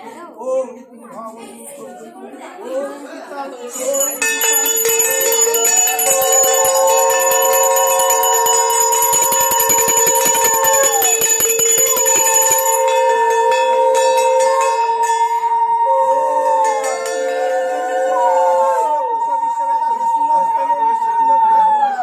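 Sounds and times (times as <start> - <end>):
hand bell ringing rapidly: 3.7 - 13.6
conch shells blown: 4.5 - 18.8.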